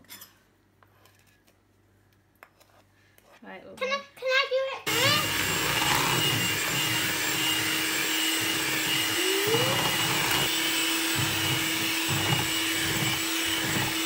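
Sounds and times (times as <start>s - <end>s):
beaters whisking batter in bowl: 4.9s - 14.0s
electric hand mixer running: 4.9s - 14.0s.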